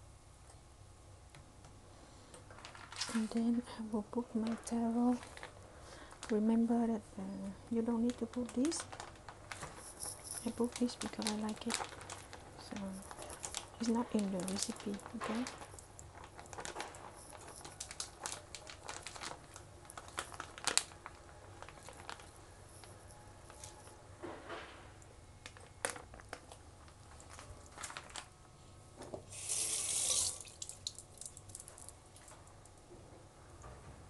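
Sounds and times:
plastic bag rustling: 2.5s - 3.6s, 4.2s - 7.0s, 7.8s - 24.8s, 25.4s - 28.5s
small liquid splashes and drips: 29.5s - 32.5s.

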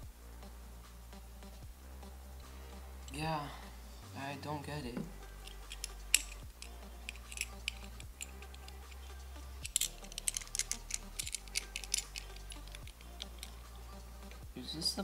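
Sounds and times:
metal lock and key clicking: 5.4s - 9.0s, 9.6s - 13.6s.

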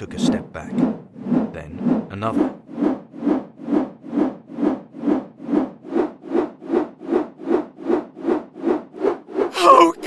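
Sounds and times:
rotor blades whooshing: 0.0s - 9.6s.

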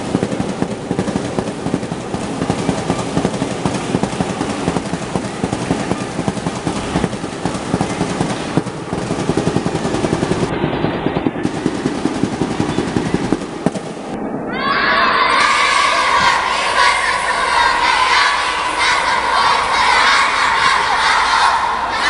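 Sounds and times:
fast dense drumming: 0.0s - 14.2s.

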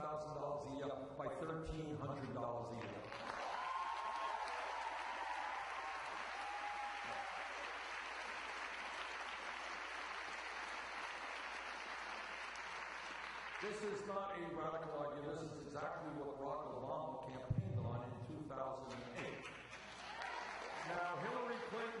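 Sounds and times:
crowd applauding: 2.8s - 14.0s, 19.4s - 22.0s
people cheering: 3.1s - 13.7s, 19.8s - 22.0s.

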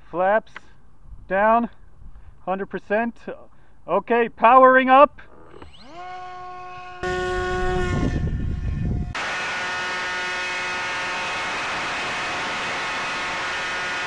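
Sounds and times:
model airplane motor whine: 5.4s - 14.0s
wind hiss: 7.0s - 13.8s
loud rush of noise: 9.1s - 14.0s.

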